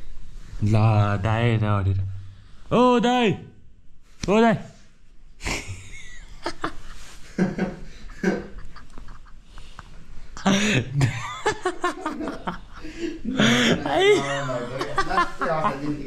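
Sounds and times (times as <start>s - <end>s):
people laughing: 5.4s - 9.8s, 10.4s - 16.0s
people talking: 13.3s - 16.0s.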